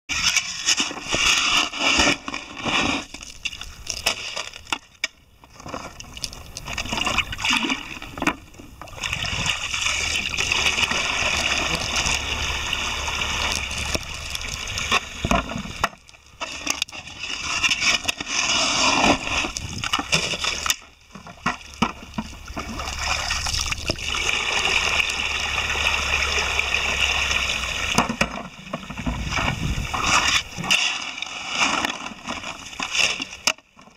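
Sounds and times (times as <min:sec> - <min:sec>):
scoop scraping wet gravel: 0:00.1 - 0:04.9, 0:09.0 - 0:33.9
water pouring onto gravel: 0:09.0 - 0:16.3, 0:21.7 - 0:28.0.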